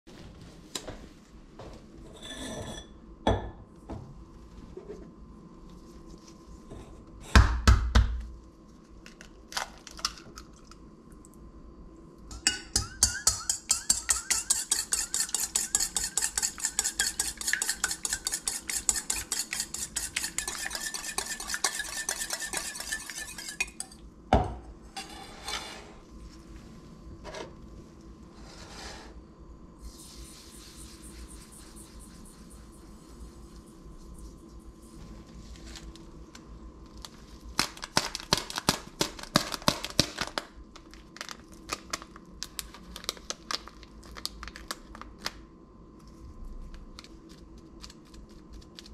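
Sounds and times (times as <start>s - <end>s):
whisk beating eggs in metal bowl: 12.3s - 24.0s.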